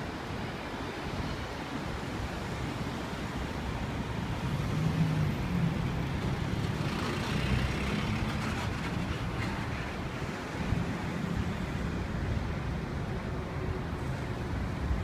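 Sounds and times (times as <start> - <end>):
road traffic rumble: 0.0 - 15.0
engine hum: 4.4 - 11.9.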